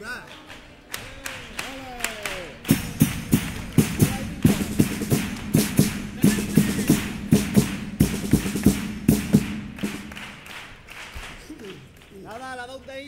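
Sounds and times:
sharp drum strokes: 2.6 - 10.8.

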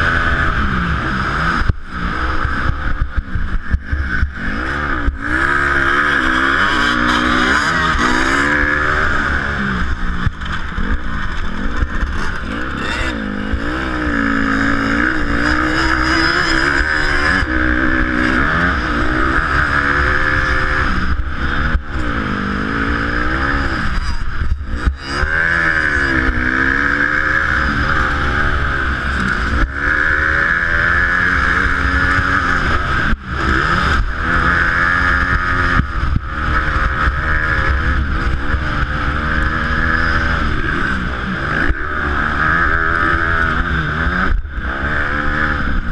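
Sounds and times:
motorcycle engine revving: 0.0 - 45.9
wind noise on microphone: 31.8 - 45.9.

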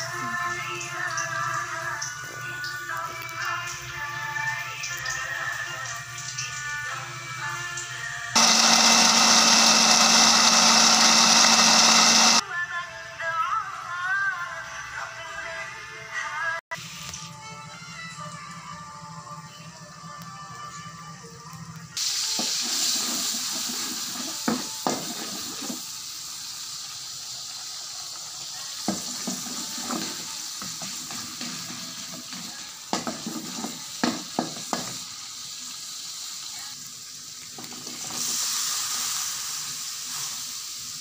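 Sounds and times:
food sizzling in hot oil: 0.0 - 12.4, 22.0 - 41.0.

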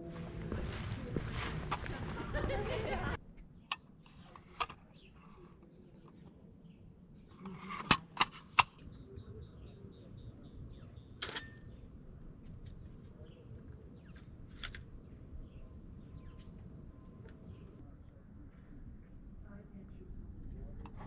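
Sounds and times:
low background noise: 0.0 - 21.0
faint bird chirps: 8.4 - 19.0.

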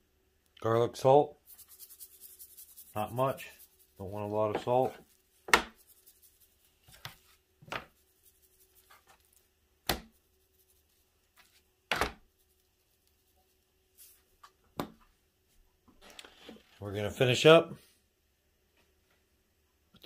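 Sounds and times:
faint steady hum: 0.0 - 20.0
meat thudding on metal pan: 5.5 - 5.8.

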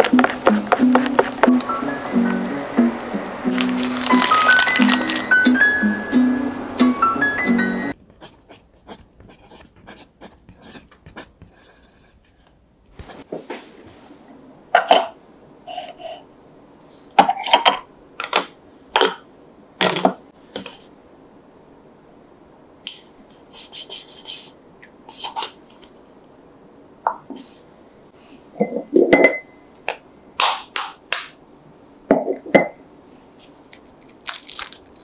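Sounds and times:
plastic rubbing: 0.0 - 1.7, 3.5 - 5.3
background music: 0.0 - 8.0.

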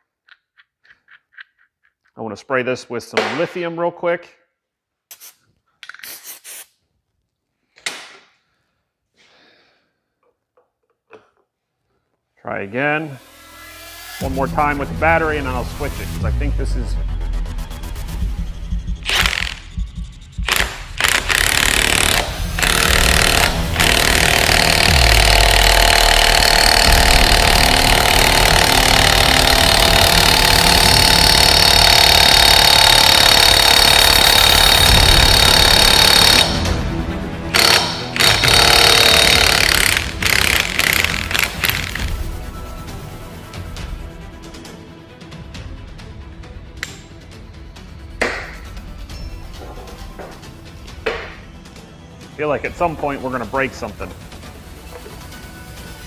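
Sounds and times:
aerosol can spraying: 5.1 - 6.7
tool clicks and knocks: 10.2 - 11.5
impact wrench hammering: 19.0 - 36.7, 37.5 - 42.1, 51.0 - 51.4.

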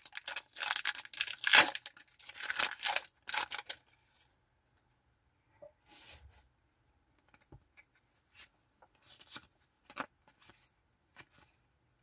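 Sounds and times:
foil wrapper tearing: 0.0 - 3.8.

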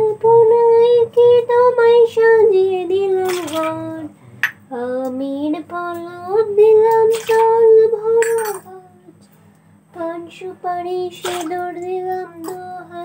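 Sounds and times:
woman singing devotional song: 0.0 - 9.3, 9.9 - 13.0.

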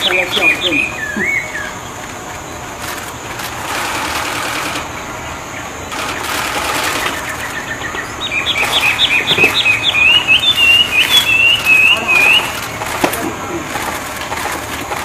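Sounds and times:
songbird singing harsh scratchy song: 0.0 - 3.2, 5.4 - 13.9
bird fast sharp chirping: 0.0 - 14.5.

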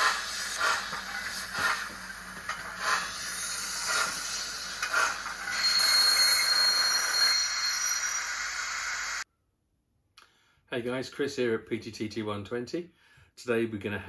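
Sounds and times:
steam locomotive chuffs: 0.0 - 9.2.

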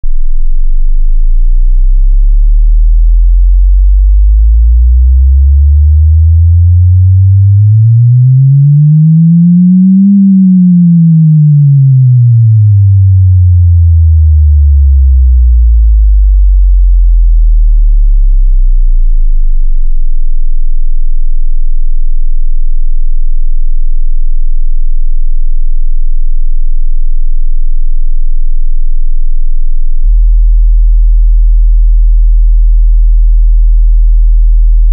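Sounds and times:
sine tone sweeping up and down: 0.0 - 34.9
very deep steady tone: 0.0 - 34.9.

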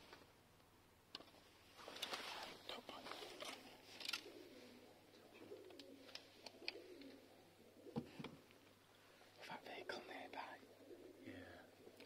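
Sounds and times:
bird cooing: 3.1 - 8.3, 9.7 - 12.0.

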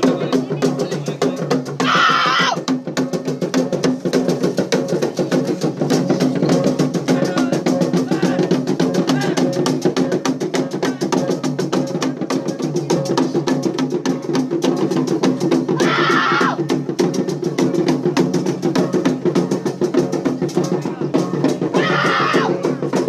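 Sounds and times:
fast drumming: 0.0 - 23.0
loud shouts: 1.8 - 2.7, 15.8 - 16.7, 21.7 - 22.7.

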